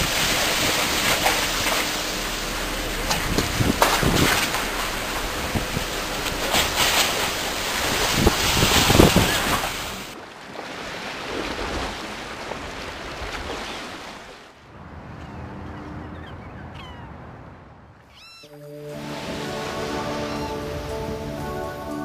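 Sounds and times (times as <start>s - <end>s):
wind buffeting microphone: 0.0s - 10.2s
rough sea water noise: 0.0s - 22.0s.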